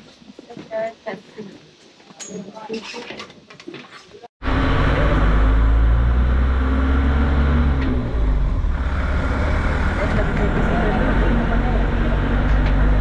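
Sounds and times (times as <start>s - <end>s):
vehicle engine running: 4.4s - 13.0s.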